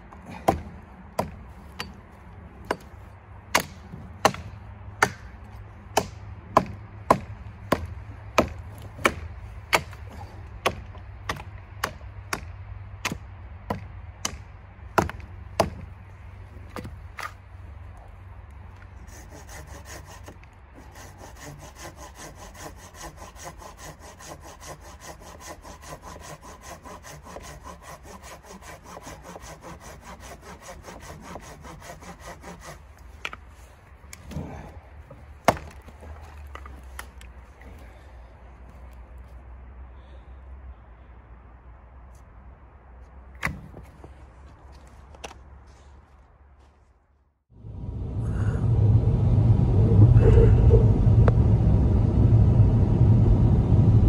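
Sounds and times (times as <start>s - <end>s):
hatchet chopping wood: 0.1s - 15.9s, 16.7s - 17.4s, 19.1s - 33.4s, 34.1s - 37.3s, 43.4s - 44.0s
pruning saw cutting branch: 18.8s - 34.7s.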